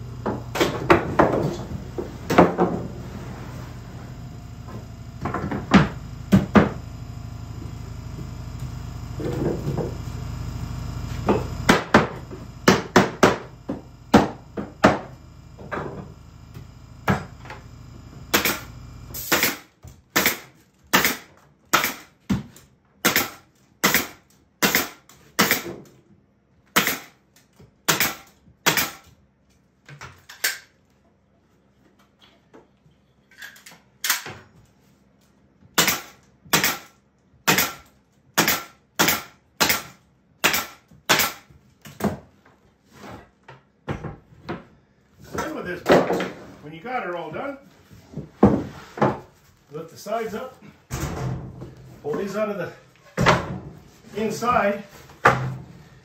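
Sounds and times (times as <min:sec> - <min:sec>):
low hum: 0:00.0 - 0:19.3
pneumatic nail gun shots: 0:18.3 - 0:22.2, 0:23.0 - 0:25.8, 0:26.7 - 0:27.2, 0:27.8 - 0:29.1, 0:34.0 - 0:34.3, 0:35.8 - 0:41.5.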